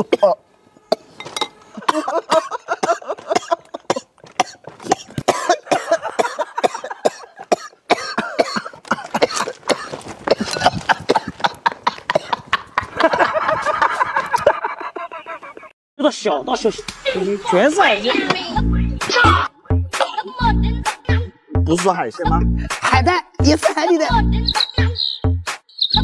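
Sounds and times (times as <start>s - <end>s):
men coughing and gasping: 0.0s - 15.4s.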